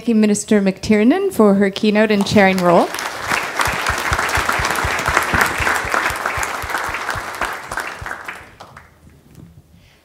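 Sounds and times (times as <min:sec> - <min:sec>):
audience applauding: 0:02.1 - 0:09.0.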